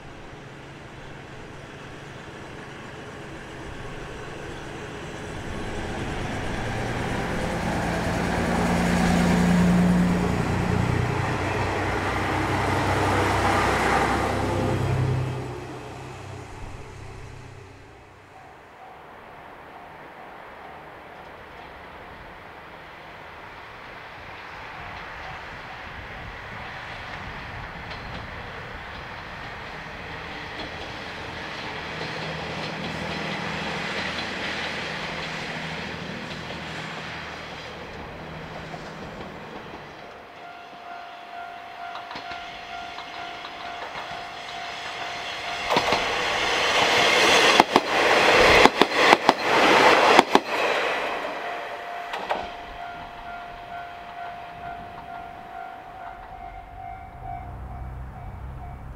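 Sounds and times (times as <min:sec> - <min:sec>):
diesel railcar engine: 0:00.0 - 0:58.9
wheels clacking over rail joints: 0:23.7 - 0:40.4, 0:41.8 - 0:58.9
steady ringing tone: 0:51.4 - 0:58.9.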